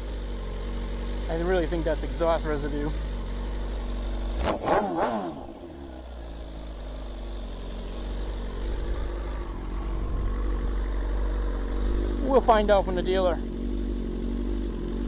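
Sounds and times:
motorcycle engine idling: 0.0 - 15.0
engine rev with sharp clicks: 1.2 - 9.6.

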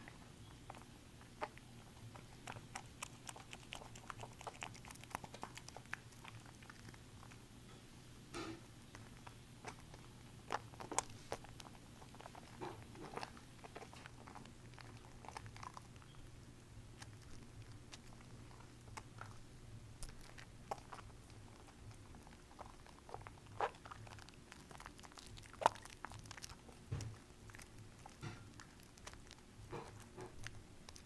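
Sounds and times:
wet soap foam squishing: 16.9 - 31.0.

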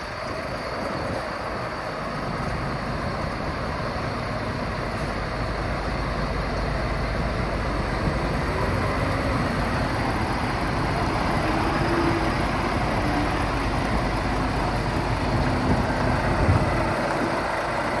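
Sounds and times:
diesel truck engine idling: 0.0 - 18.0.

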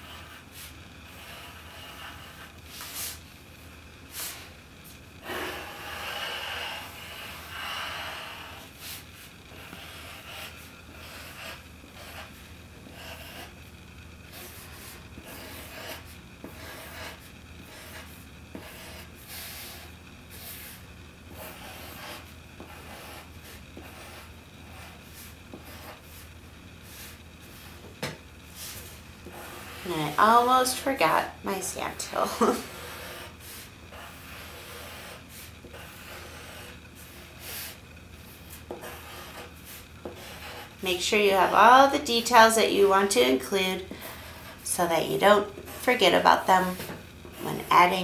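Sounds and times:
pencil scratching on paper: 0.0 - 3.2, 5.2 - 13.6, 14.3 - 27.9, 28.6 - 31.2, 31.8 - 40.8
steady low hum: 0.0 - 48.0.

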